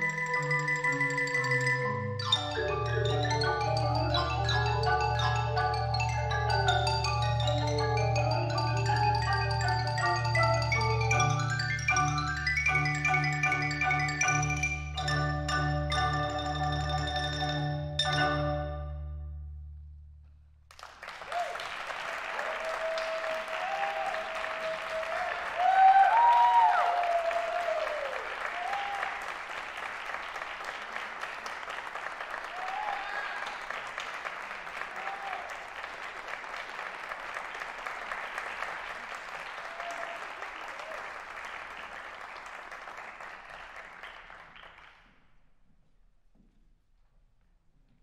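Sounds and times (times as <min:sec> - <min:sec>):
audience applauding: 0:20.7 - 0:45.1
cheers: 0:21.0 - 0:44.2.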